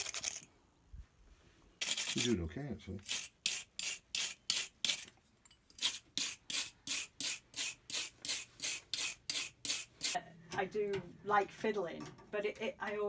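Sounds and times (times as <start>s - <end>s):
wire brush scrubbing metal: 1.8s - 2.4s, 3.0s - 5.1s, 5.8s - 10.2s.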